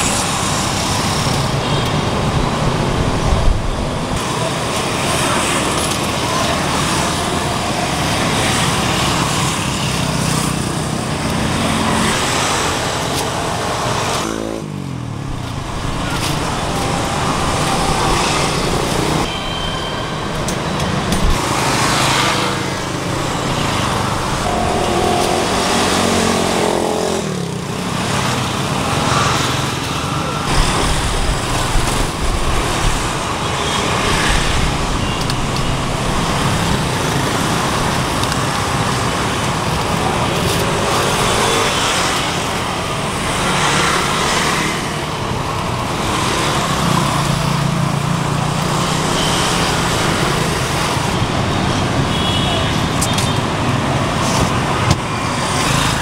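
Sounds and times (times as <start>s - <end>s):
motorbikes and cars passing: 0.0s - 56.0s.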